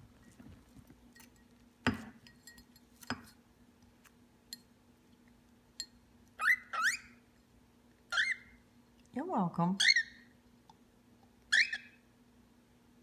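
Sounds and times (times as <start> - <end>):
bird chirping: 6.4 - 7.2, 8.1 - 8.6, 9.8 - 10.3, 11.5 - 12.0.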